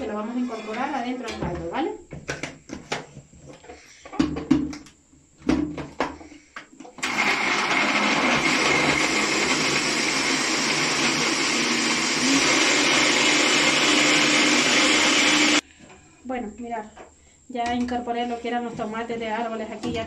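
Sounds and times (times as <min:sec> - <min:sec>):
electric blender running: 0:07.0 - 0:15.6.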